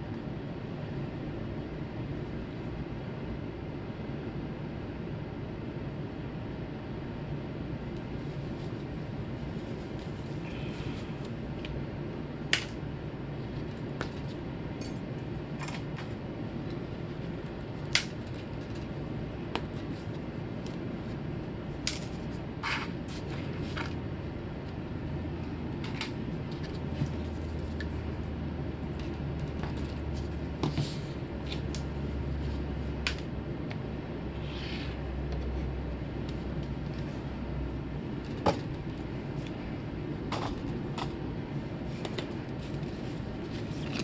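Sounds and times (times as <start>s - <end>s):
steady low hum: 0.0s - 44.0s.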